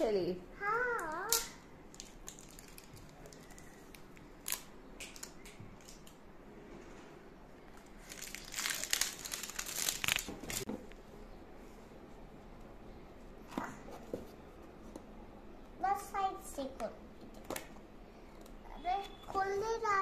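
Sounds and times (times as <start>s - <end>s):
plastic pack crinkling: 1.9s - 6.1s, 7.8s - 10.7s.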